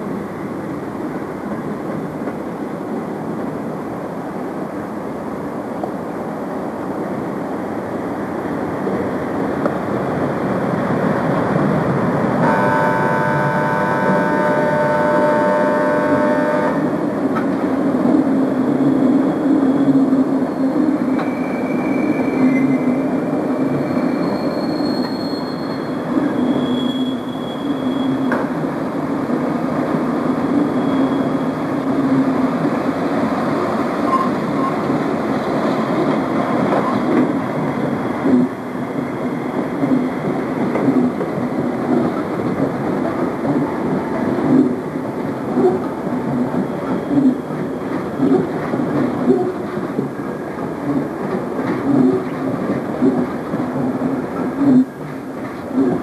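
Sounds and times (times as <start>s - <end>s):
train wheels rumbling: 0.0s - 56.0s
sustained horn chord: 12.4s - 17.0s.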